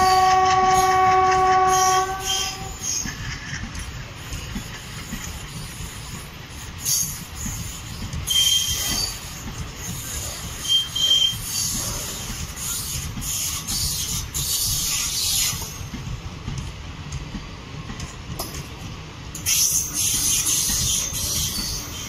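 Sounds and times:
train wheels rumbling on rails: 0.0s - 22.0s
wheels squealing: 6.8s - 15.8s.

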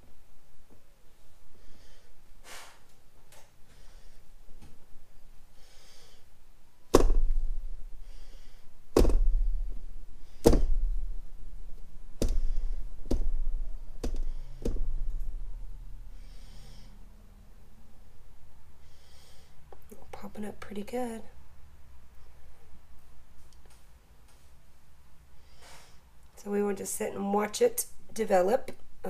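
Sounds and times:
canvas knocking against plastic tub: 8.9s - 9.6s.

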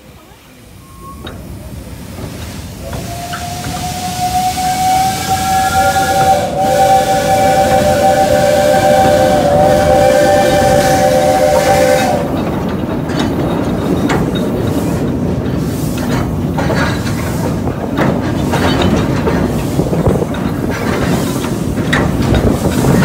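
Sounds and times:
steam locomotive rumbling: 0.0s - 23.0s
clanks from rails and running gear: 0.2s - 4.1s, 12.2s - 23.0s
two-note train whistle: 2.8s - 12.3s.

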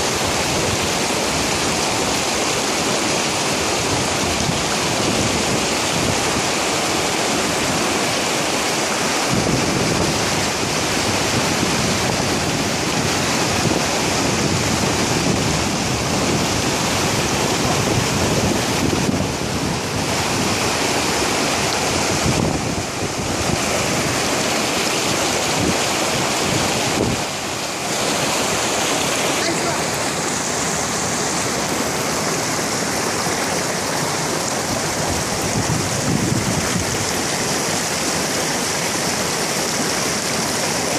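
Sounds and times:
stream rushing over boulders: 0.0s - 40.9s
wind buffeting microphone: 9.2s - 29.1s, 30.2s - 37.9s.

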